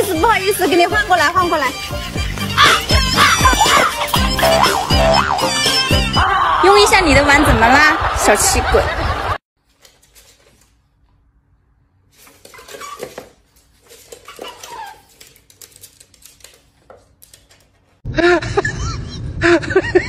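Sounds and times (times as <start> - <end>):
animals scuffling on wooden floor: 9.6 - 10.9, 12.1 - 18.0.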